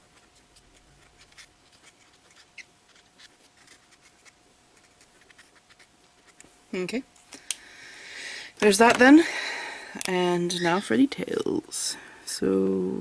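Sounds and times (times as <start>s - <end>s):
marker scratching on paper: 0.2s - 6.4s.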